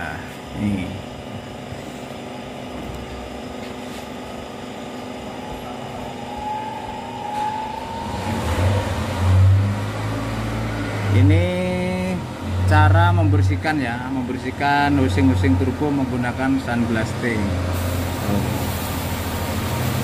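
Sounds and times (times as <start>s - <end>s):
low engine-like drone: 5.2s - 20.0s
sandblaster air hiss: 17.7s - 20.0s.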